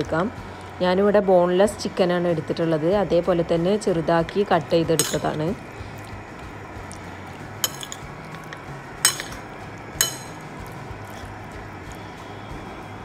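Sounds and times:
spoon clinking against plate: 5.0s - 5.4s, 7.6s - 10.4s.

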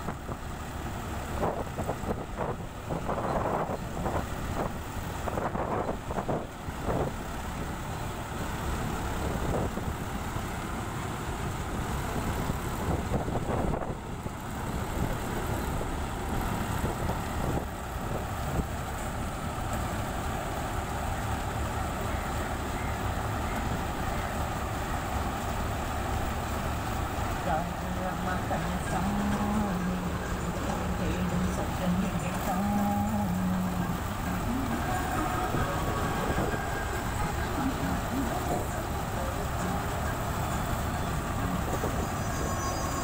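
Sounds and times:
combine harvester running: 0.0s - 43.0s.

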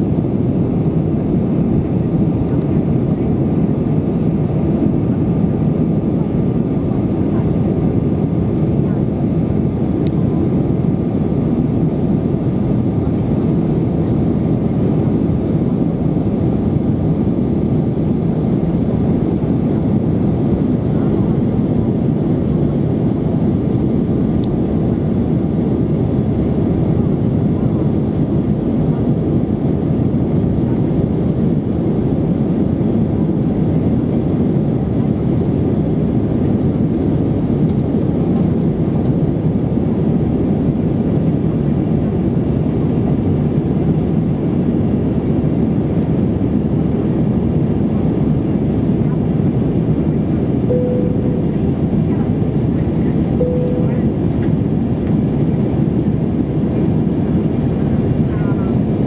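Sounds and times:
airplane cabin jet engine rush: 0.0s - 59.0s.

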